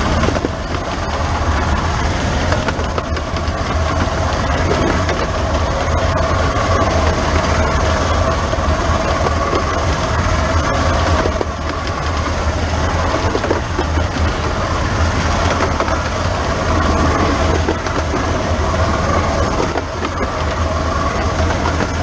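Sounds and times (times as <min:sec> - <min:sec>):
deep rumble: 0:00.0 - 0:22.0
steam locomotive running: 0:00.0 - 0:22.0
wheels clicking on track: 0:00.0 - 0:22.0.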